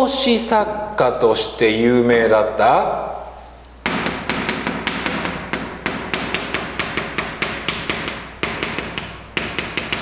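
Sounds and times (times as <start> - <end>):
chalk tapping and scratching on board: 3.8 - 10.0.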